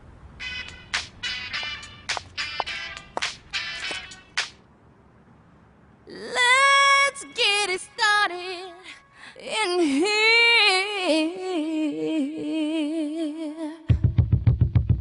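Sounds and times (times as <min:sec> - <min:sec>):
woman singing alone: 0:06.1 - 0:14.0.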